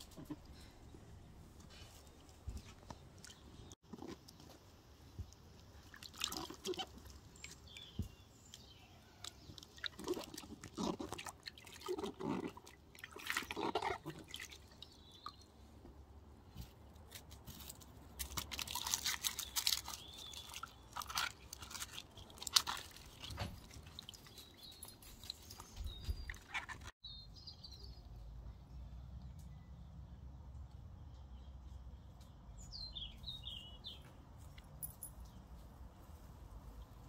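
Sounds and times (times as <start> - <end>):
water splashing and dripping: 5.2 - 8.6, 9.3 - 15.4, 18.3 - 26.9
dry onion skins crackling: 16.8 - 26.9.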